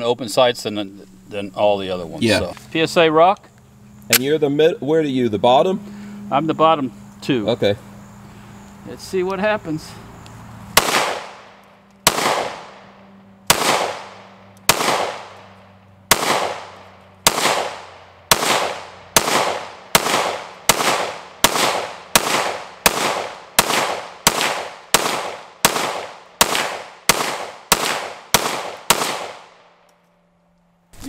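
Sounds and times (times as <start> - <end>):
pistol shots with echo: 10.8 - 29.8.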